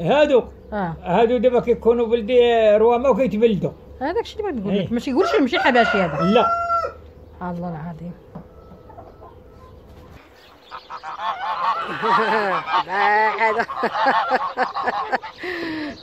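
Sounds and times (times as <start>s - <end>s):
geese honking: 8.5s - 16.0s.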